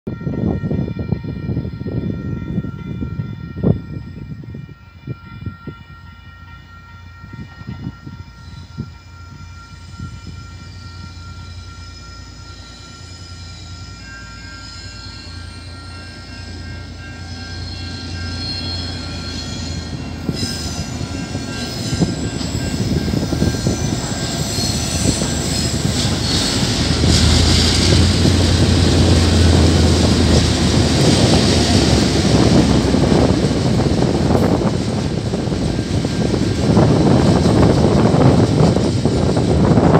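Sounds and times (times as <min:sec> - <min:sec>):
wagons rumbling on rails: 0:00.1 - 0:39.9
locomotive engine throb: 0:17.4 - 0:39.9.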